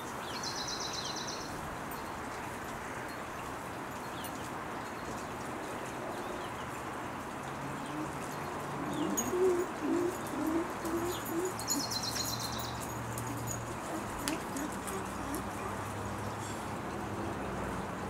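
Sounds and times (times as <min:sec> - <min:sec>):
steady outdoor hiss: 0:00.0 - 0:18.0
dove cooing: 0:07.6 - 0:15.9.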